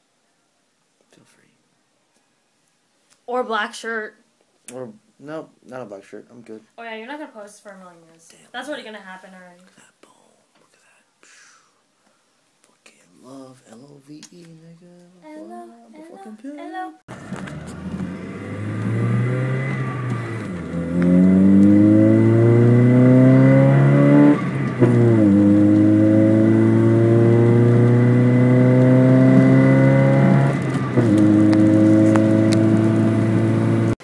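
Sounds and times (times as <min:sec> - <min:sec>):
car engine accelerating: 0:17.1 - 0:34.0.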